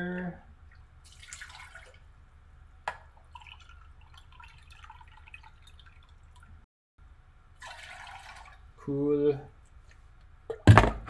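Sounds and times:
water dripping: 0.5s - 2.2s, 2.8s - 6.6s
water pouring into a metal pan: 1.0s - 2.0s, 3.3s - 6.5s, 7.6s - 8.7s.

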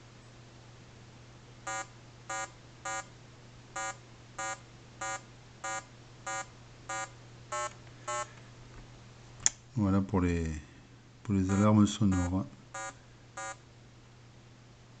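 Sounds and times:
short buzzy electronic beeps: 3.8s - 8.3s, 11.5s - 13.6s.

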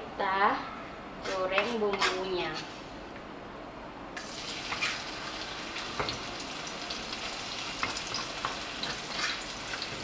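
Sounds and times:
spice paste sizzling in oil: 4.2s - 10.0s.

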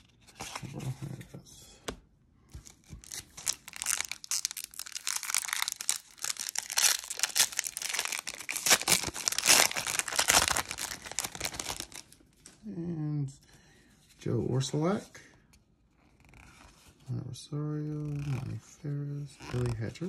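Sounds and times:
foil wrapper tearing and crinkling: 2.8s - 12.2s.

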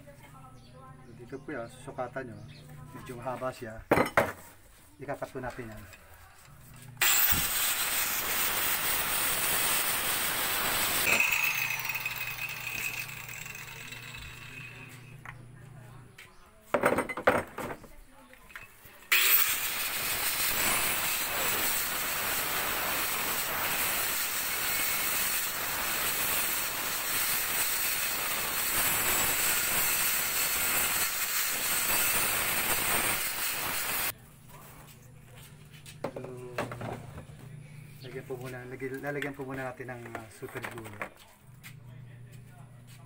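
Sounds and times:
angle grinder cutting pipe: 6.8s - 15.3s, 19.0s - 34.1s.

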